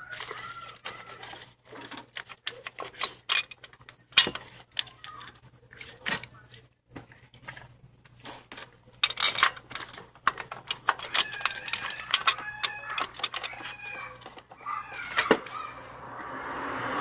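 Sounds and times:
metallic clicks and clinks: 1.8s - 5.3s, 9.0s - 15.3s.

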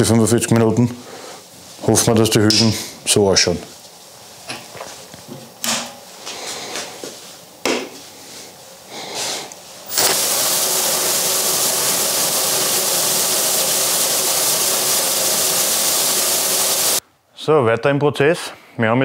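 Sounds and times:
case tumbler whooshing hiss: 9.8s - 17.0s.

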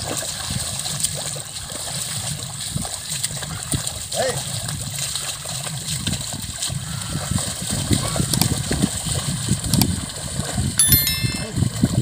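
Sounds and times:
hooves and plough squelching in mud: 0.0s - 10.8s
high ringing: 10.8s - 11.7s.

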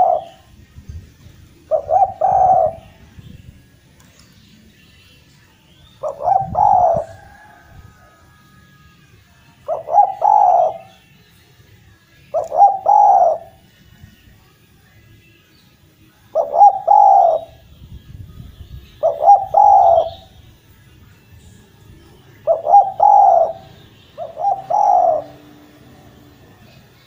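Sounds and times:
dove cooing: 0.0s - 0.5s, 1.6s - 3.0s, 6.0s - 8.2s, 9.6s - 11.0s, 12.3s - 13.6s, 16.3s - 17.6s, 19.0s - 20.4s, 22.4s - 26.5s.

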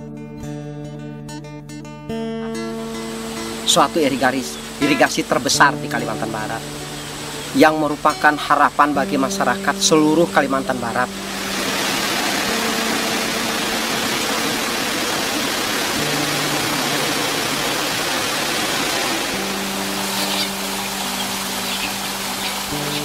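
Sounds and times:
soft sustained music notes: 0.0s - 23.0s
water rushing over weir: 2.6s - 9.0s, 11.0s - 23.0s.

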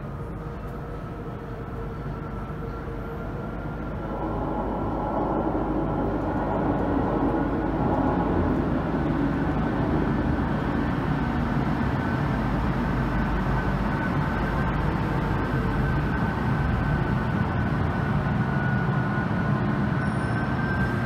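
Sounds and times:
thin high train whine: 0.0s - 21.0s.

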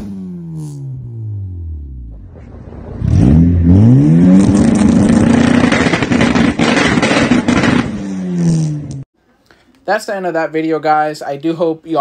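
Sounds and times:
engine revving with raspy exhaust: 0.0s - 9.0s.

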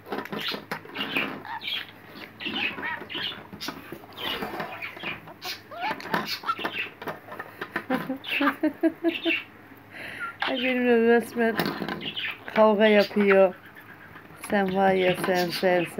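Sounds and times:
budgerigar chirps and squawks: 0.3s - 7.0s, 8.2s - 9.5s, 10.2s - 10.8s, 12.0s - 14.4s.

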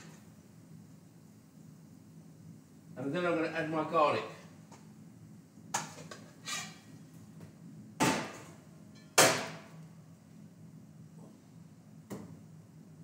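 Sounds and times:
steady low hum: 0.0s - 13.0s
metal kitchenware clanking on steel: 8.9s - 9.2s.

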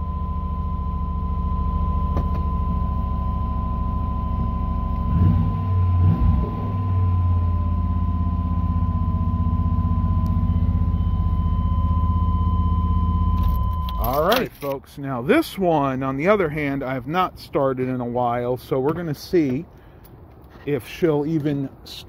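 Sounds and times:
low engine rumbling: 0.0s - 22.0s.

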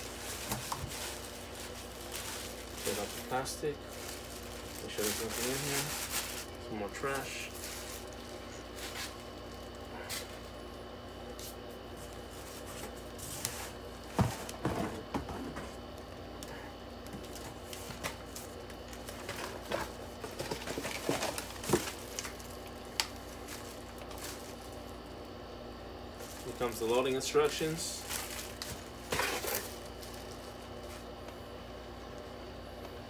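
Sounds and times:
cardboard rustling: 0.0s - 10.5s, 17.2s - 24.9s, 28.0s - 31.2s
plastic packaging crinkling: 0.0s - 10.6s, 17.1s - 25.2s, 26.2s - 31.3s.

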